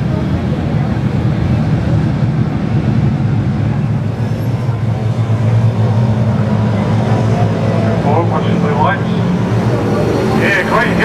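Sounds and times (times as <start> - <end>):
racing car engines droning: 0.0 - 11.0.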